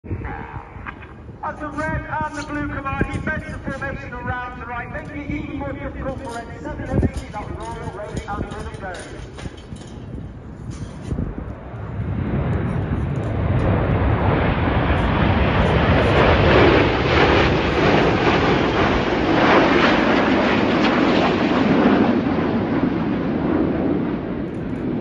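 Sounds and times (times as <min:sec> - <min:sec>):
jets flying past: 0:11.1 - 0:25.0.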